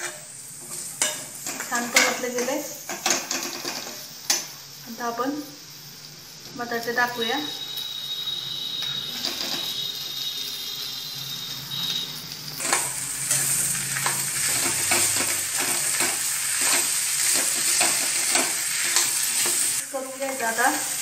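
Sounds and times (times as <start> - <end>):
metal spoon scraping a pan: 0.0 - 4.5, 8.8 - 9.8, 12.6 - 20.5
potatoes sizzling in hot oil: 0.0 - 21.0.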